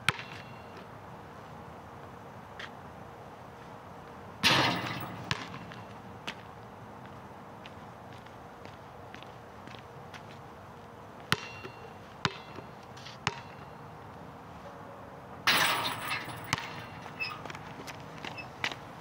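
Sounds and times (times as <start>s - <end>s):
basketball bouncing: 0.0s - 0.5s, 4.4s - 6.0s, 11.3s - 13.7s, 15.5s - 17.6s
ball crashing on hoop: 4.4s - 5.8s, 15.5s - 17.4s.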